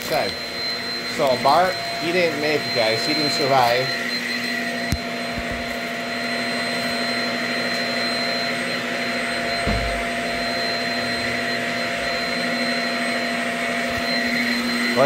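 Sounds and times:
stick vacuum running: 0.0 - 15.0.

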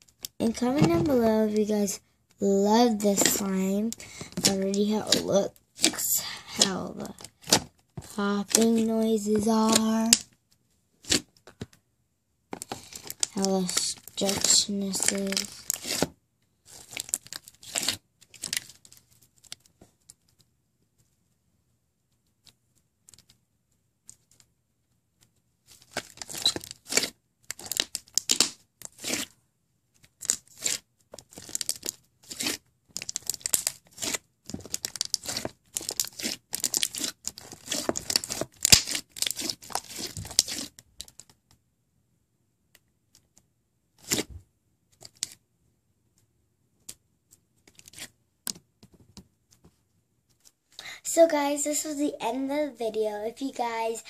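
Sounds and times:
slime crackling and popping: 3.0 - 10.3, 12.6 - 16.1, 16.7 - 20.2, 25.7 - 29.3, 30.0 - 41.4.

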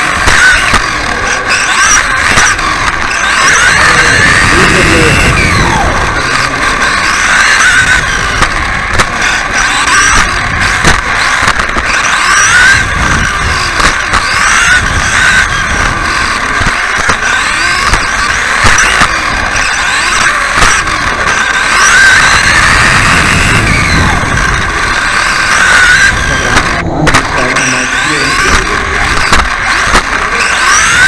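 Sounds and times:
chassis knocking over bumps: 0.0 - 31.0
rc car motor whining: 0.0 - 31.0.

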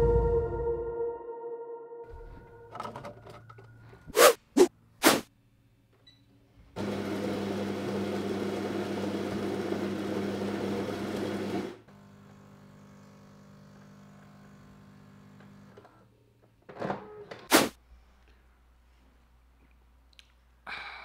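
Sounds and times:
coffee grinder whirring: 6.8 - 12.9.

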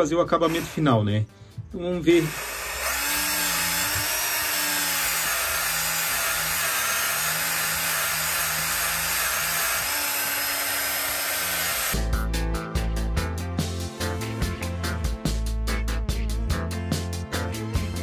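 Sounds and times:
music: 0.0 - 4.0, 11.9 - 18.0
polisher sanding metal: 0.4 - 1.0, 2.0 - 12.0.

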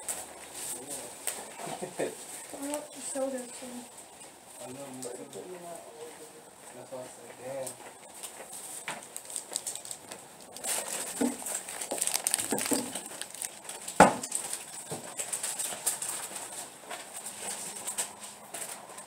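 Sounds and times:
bags rustling: 8.1 - 18.9
items clunking: 10.5 - 18.1.

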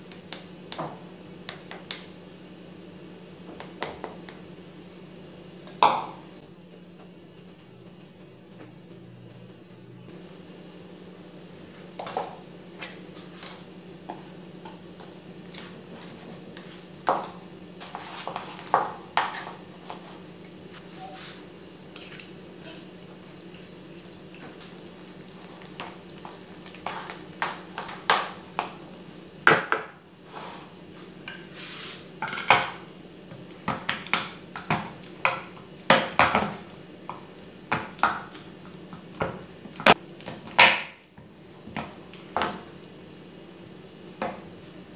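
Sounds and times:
steady low hum: 0.0 - 44.9
utensils clinking in a ceramic bowl: 21.9 - 27.2.

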